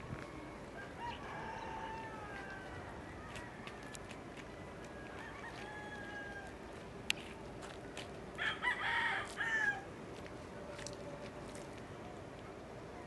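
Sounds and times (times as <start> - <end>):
distant rooster crowing: 0.2 - 6.7, 8.4 - 9.9
rooster crowing: 0.4 - 6.6, 8.4 - 9.9.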